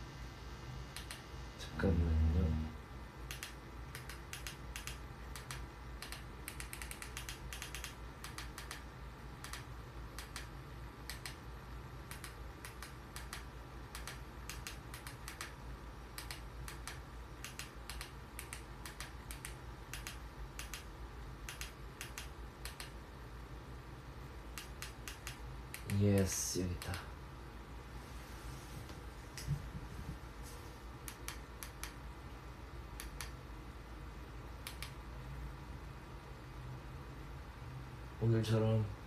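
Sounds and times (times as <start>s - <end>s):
steady low hum: 0.0s - 39.0s
computer keyboard typing: 3.3s - 8.8s.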